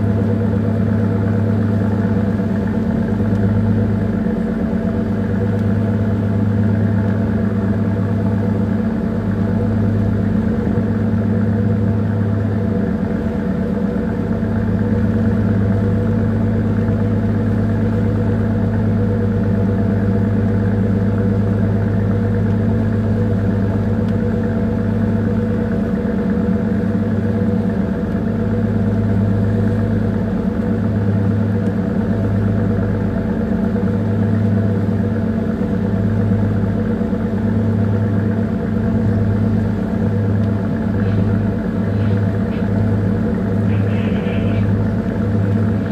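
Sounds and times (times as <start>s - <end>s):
diesel engine low drone: 0.0s - 45.9s.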